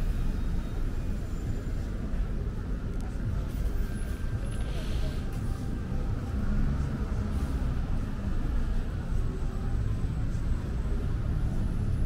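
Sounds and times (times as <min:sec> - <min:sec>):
low rumble of road traffic: 0:00.0 - 0:12.0.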